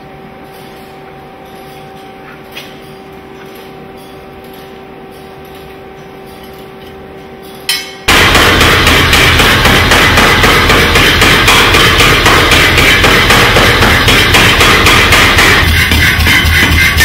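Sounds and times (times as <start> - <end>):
steady two-tone hum: 0.0 - 17.0
power hammer beating iron: 7.7 - 17.0
forge fire: 8.1 - 15.6.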